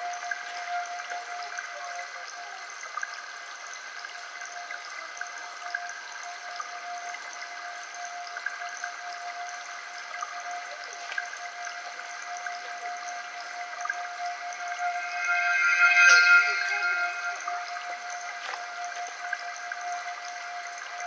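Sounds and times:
hiss like running water: 0.0 - 21.0
drone of held tones: 5.6 - 21.0
faint ticks: 10.2 - 11.4.

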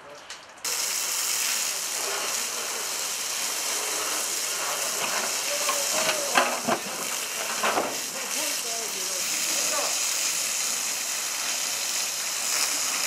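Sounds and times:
hose spraying water: 0.6 - 13.0
water splashing on boards: 4.4 - 9.6.

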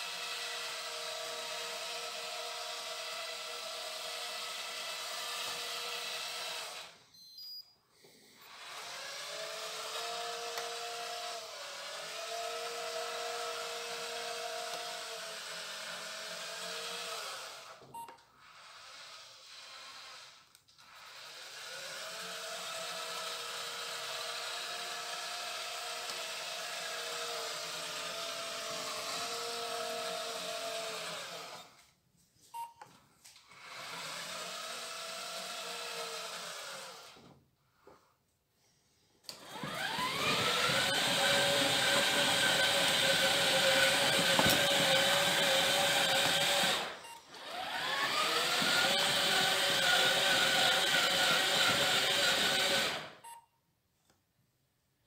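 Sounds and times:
whine of small motors: 39.4 - 53.2.

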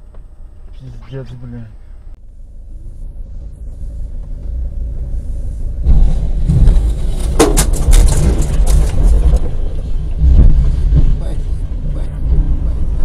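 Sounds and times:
car engine rumble: 0.0 - 13.0
car crunching through dirt: 5.8 - 11.6.

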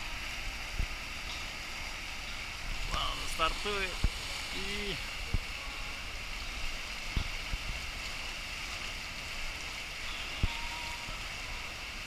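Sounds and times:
water rushing into pool: 0.0 - 12.0.

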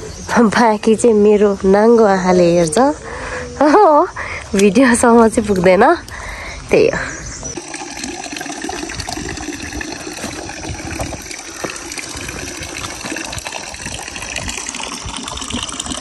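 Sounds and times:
water rushing: 7.6 - 16.0.

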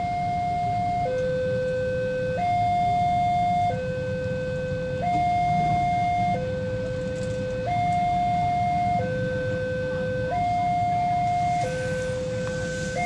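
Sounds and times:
level crossing two-tone alarm: 0.0 - 13.0
low steady rumble: 6.5 - 13.0.

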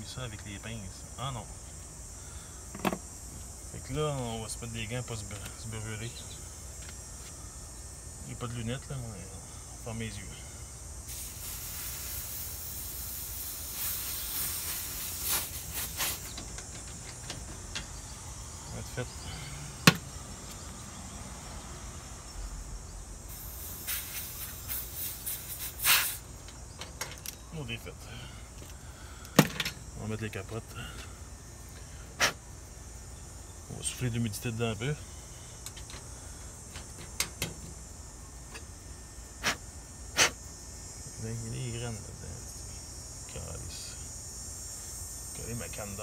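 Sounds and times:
refrigerant hissing out: 0.8 - 22.6, 23.2 - 26.7, 27.6 - 30.0, 30.6 - 38.0, 39.2 - 46.0
gas hissing in short puffs: 11.0 - 16.4, 23.3 - 26.3, 32.1 - 32.4, 39.4 - 40.4.

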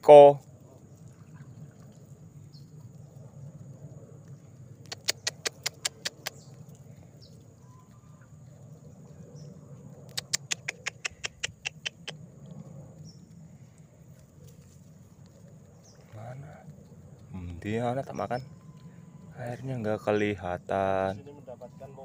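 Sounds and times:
rapid sharp clicks: 4.8 - 6.4, 10.1 - 12.2
thin steady high tone: 21.2 - 22.0.

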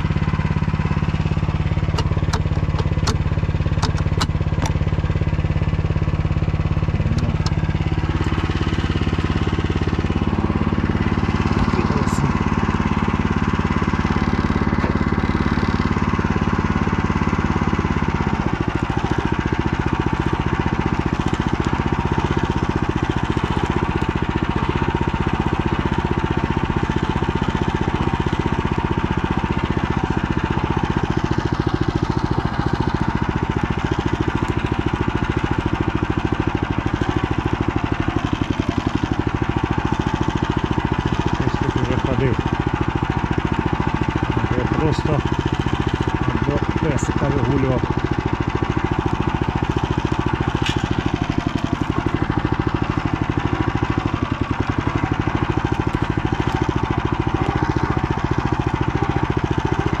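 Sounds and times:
tractor engine running: 0.0 - 60.0
sharp clicks or rattles: 1.9 - 4.8.

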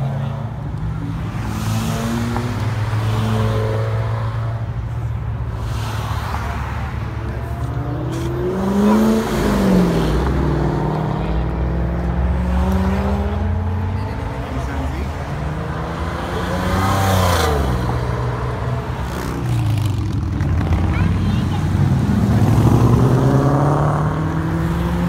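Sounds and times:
car engines rumbling: 0.0 - 25.0
car revving past: 7.7 - 20.9, 21.6 - 25.0.

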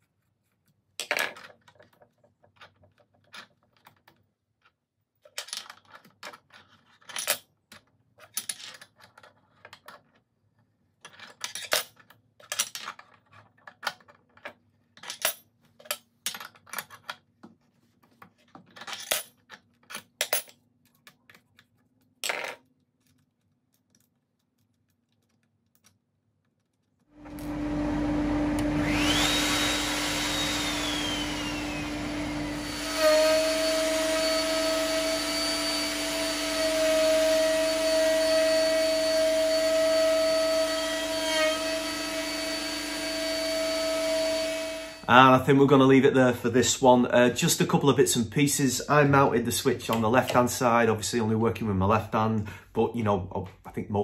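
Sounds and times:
router running with whine: 27.2 - 45.1
dust extractor running: 27.2 - 45.2.

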